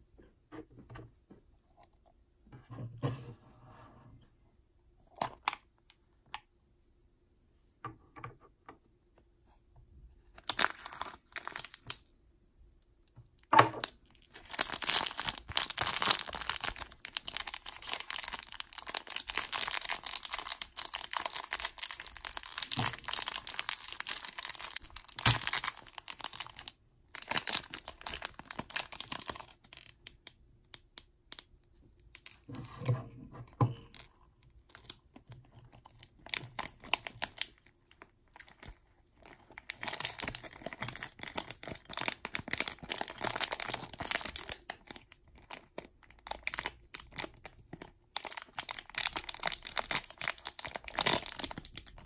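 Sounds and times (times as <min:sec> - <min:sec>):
plastic bag crinkling and tearing: 0:10.4 - 0:12.1, 0:13.8 - 0:31.5, 0:34.7 - 0:52.0.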